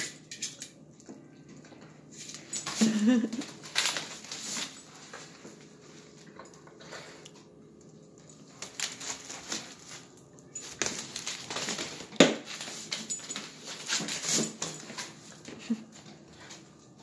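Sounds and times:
plastic bag crinkling: 2.4s - 5.4s, 8.4s - 15.2s.

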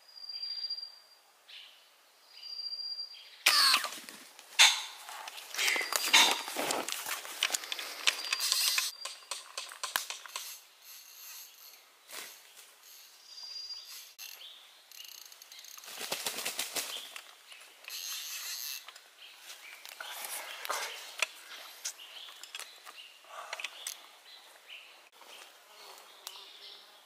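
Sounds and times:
pheasant flapping in undergrowth: 3.8s - 10.5s, 15.8s - 17.4s.

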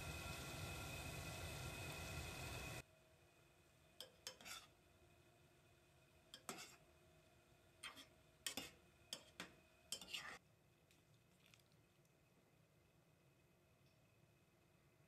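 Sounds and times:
spatula scraping metal pot: 4.0s - 4.7s, 6.4s - 6.8s, 7.8s - 10.4s.

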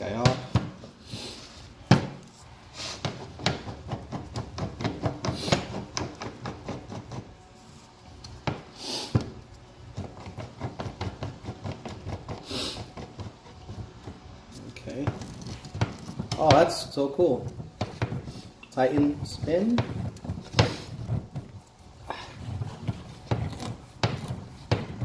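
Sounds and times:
person sniffing: 1.0s - 1.7s, 2.7s - 3.0s, 8.7s - 9.2s, 12.4s - 12.9s.

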